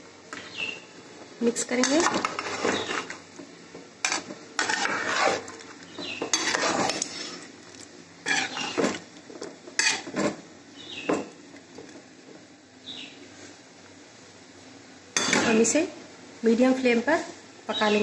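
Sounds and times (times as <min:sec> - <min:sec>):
metal ladle scraping pot: 0:01.8 - 0:03.2, 0:04.0 - 0:07.5, 0:08.2 - 0:09.0, 0:09.8 - 0:10.1.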